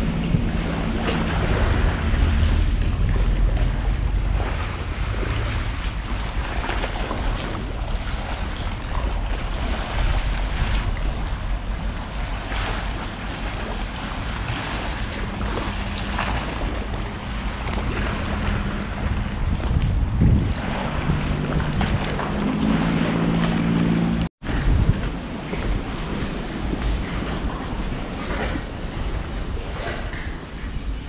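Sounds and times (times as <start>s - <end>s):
water splashes: 0.0s - 31.0s
water washing against shore: 0.0s - 31.0s
wind buffeting microphone: 0.0s - 31.0s.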